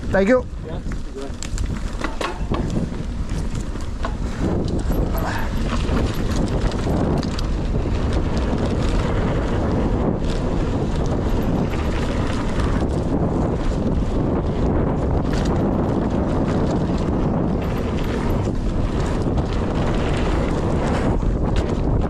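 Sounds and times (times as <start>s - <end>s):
bike rattling over bumps: 0.0s - 22.0s
bike tyre noise: 0.0s - 22.0s
wind rushing over microphone: 0.0s - 22.0s
sharp clicks and knocks: 0.9s - 2.8s.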